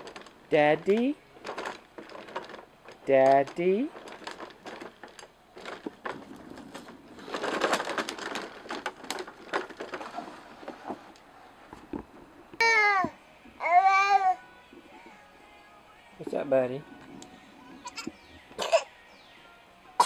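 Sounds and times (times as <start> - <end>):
plastic toy wheels rattling on wood: 0.0 - 11.2.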